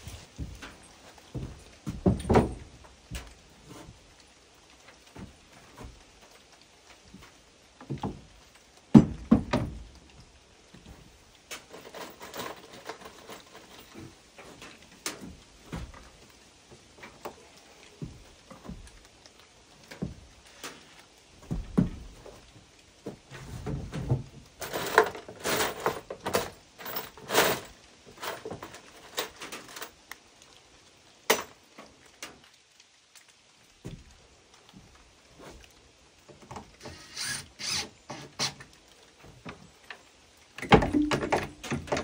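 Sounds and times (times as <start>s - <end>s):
tools knocking and rattling: 0.2s - 3.3s, 8.9s - 9.8s, 23.4s - 29.9s, 40.6s - 42.0s.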